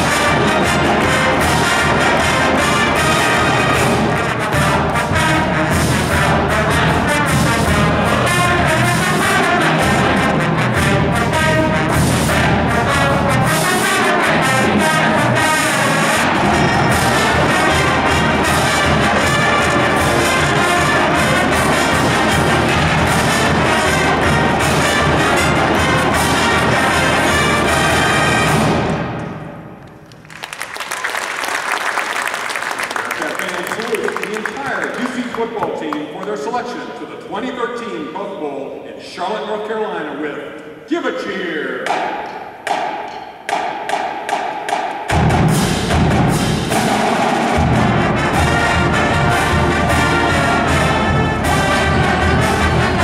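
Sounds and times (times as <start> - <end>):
brass instruments playing: 0.0 - 29.8, 43.5 - 53.0
cymbals: 0.0 - 29.8, 41.7 - 53.0
bass drum: 45.1 - 53.0.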